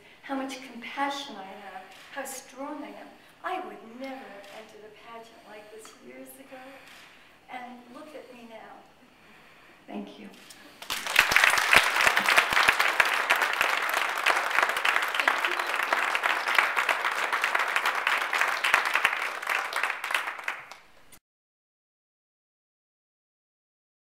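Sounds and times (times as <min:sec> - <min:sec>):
audience applauding: 0:10.8 - 0:21.2.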